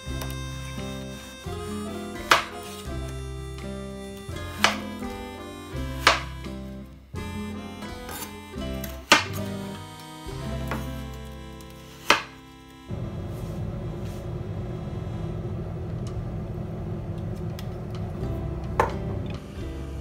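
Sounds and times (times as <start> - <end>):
background music: 0.0 - 13.0, 18.2 - 20.0
knife chop on cutting board: 6.0 - 6.3
steady low hum: 9.4 - 20.0.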